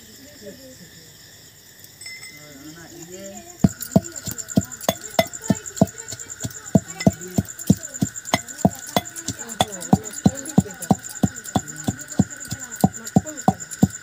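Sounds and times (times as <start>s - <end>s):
iron rod pounding metal mortar: 3.6s - 14.0s.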